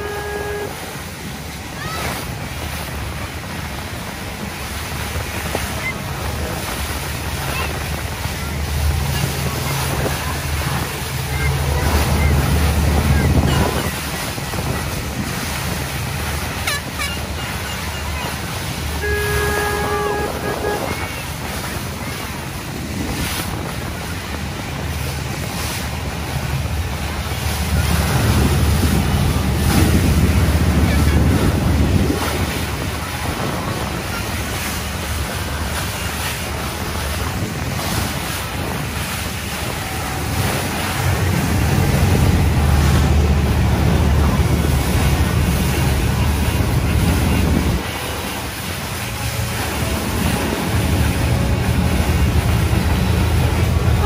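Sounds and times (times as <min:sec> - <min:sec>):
water splashing past boat: 0:00.0 - 0:54.0
wind buffeting microphone: 0:00.6 - 0:54.0
low rumble: 0:36.7 - 0:54.0
steady tone: 0:38.8 - 0:54.0.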